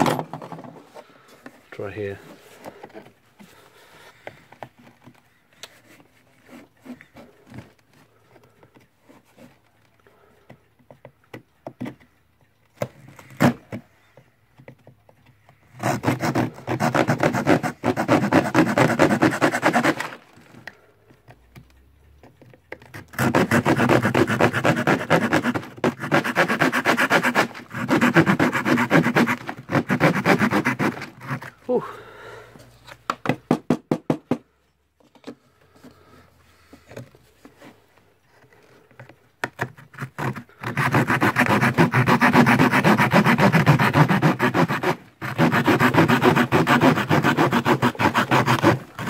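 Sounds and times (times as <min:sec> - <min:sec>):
hand saw cutting plywood: 0:12.8 - 0:13.9, 0:15.6 - 0:20.8, 0:22.8 - 0:32.0, 0:39.4 - 0:49.0.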